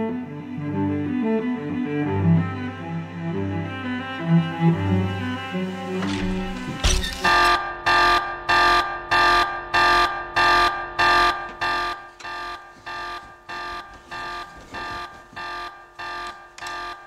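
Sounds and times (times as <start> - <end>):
electronic alarm beeping: 7.2 - 17.0.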